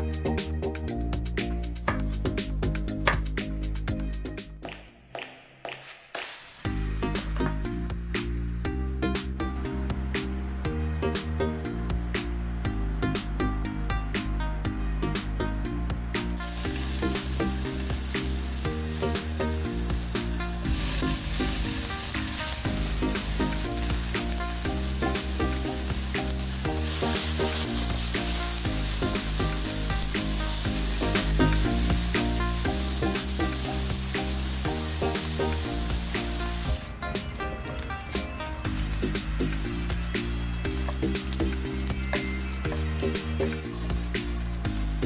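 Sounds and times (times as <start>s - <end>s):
background music: 0.0s - 45.0s
oil sizzling in frying pan: 16.4s - 42.0s.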